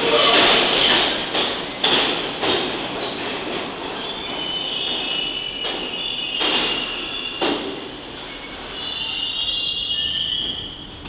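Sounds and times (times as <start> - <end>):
subway train wheels clicking: 0.0 - 11.0
high wheel squeal: 8.2 - 10.8.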